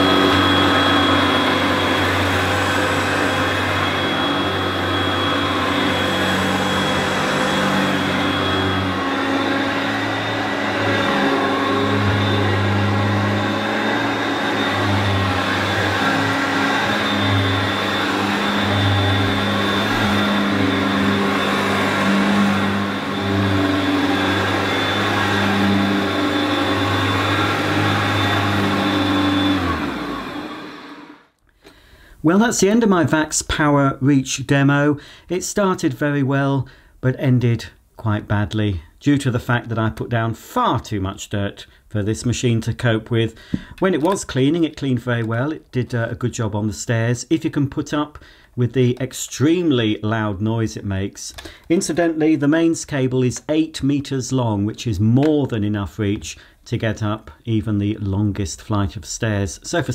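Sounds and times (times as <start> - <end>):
vacuum cleaner running on carpet: 0.0 - 31.3.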